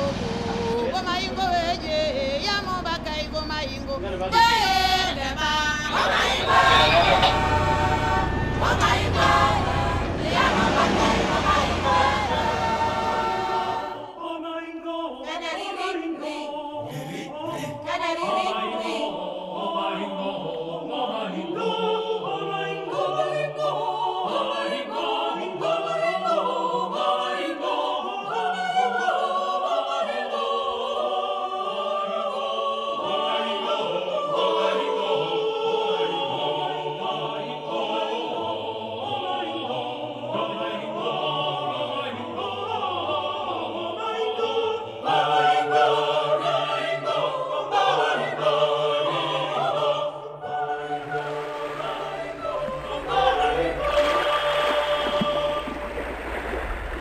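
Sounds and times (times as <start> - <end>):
choir singing operatic music: 0.0 - 57.0.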